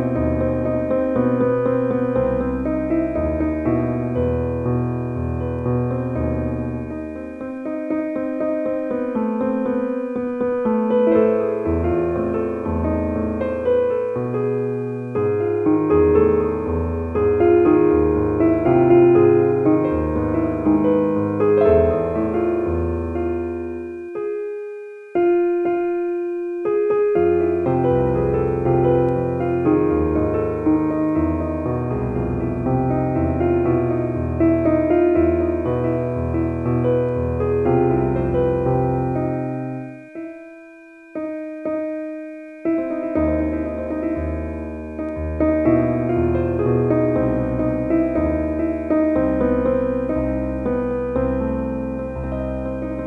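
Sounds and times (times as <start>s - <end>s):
slow piano music: 0.0s - 53.0s
low bass line: 16.0s - 23.4s.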